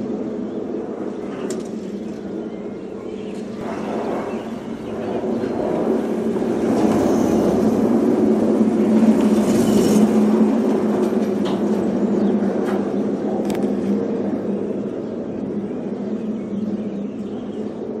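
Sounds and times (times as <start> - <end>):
pod rolling on metal track: 3.5 - 13.9.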